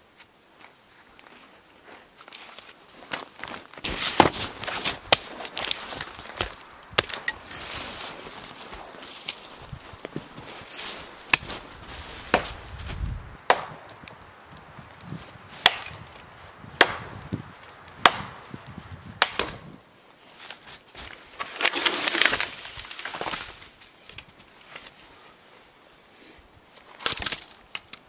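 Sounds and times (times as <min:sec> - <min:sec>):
tree cracking and falling: 0:02.9 - 0:19.8, 0:20.4 - 0:24.9, 0:26.8 - 0:28.0
hatchet chopping wood: 0:05.1 - 0:07.4, 0:13.5 - 0:14.0, 0:15.6 - 0:16.0, 0:16.8 - 0:17.3, 0:18.0 - 0:18.5, 0:19.2 - 0:19.7.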